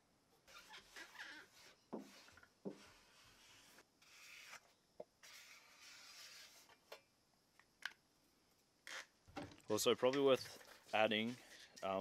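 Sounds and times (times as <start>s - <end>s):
marker rubbing on sheet steel: 0.5s - 6.8s.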